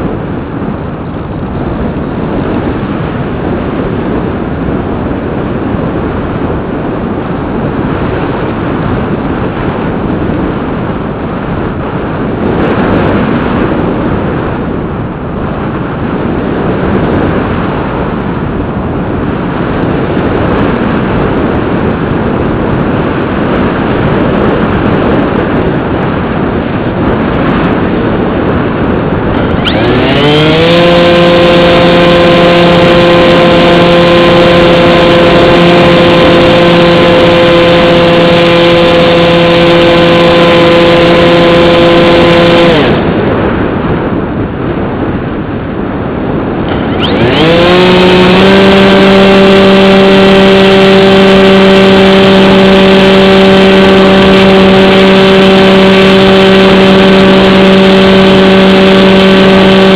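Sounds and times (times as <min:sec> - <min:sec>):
rushing airflow: 0:00.0 - 0:59.9
electric motor whine: 0:28.7 - 0:43.8, 0:46.3 - 0:59.9.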